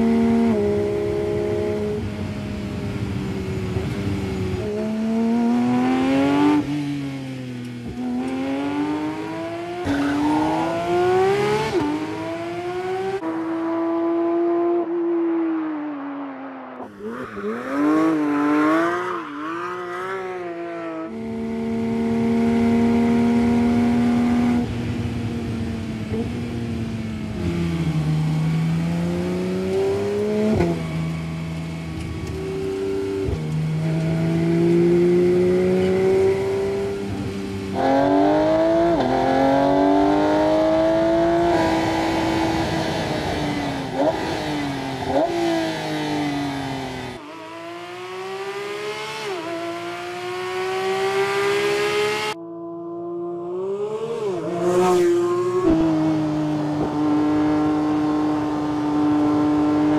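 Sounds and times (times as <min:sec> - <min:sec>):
sports car engine revving: 0:07.8 - 0:14.8, 0:25.6 - 0:52.4, 0:53.2 - 0:59.9.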